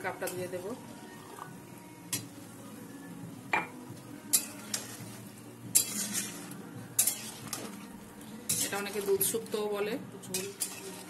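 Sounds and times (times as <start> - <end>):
metal spatula clinking on pan: 4.3 - 4.9, 5.7 - 6.4, 7.0 - 7.5, 10.3 - 11.0.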